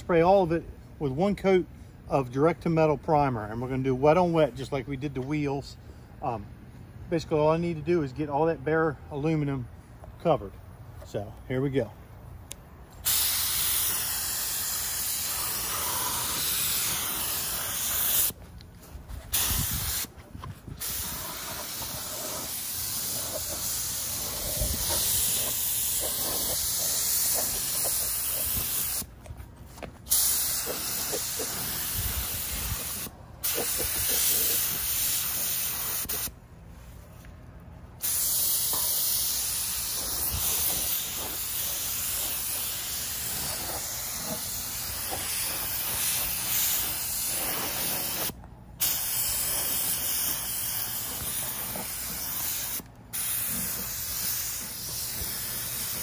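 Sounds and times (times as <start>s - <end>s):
spray gun hissing: 13.0s - 18.4s, 19.3s - 20.1s, 20.8s - 29.1s, 30.1s - 36.3s, 38.0s - 56.0s.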